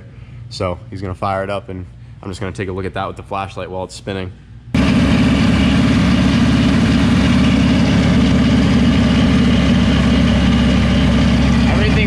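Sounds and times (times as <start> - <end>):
car engine idling: 4.8 - 12.0.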